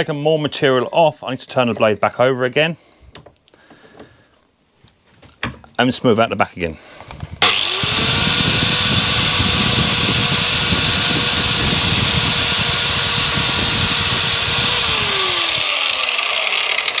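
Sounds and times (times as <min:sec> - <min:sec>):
angle grinder grinding steel: 0:07.4 - 0:17.0.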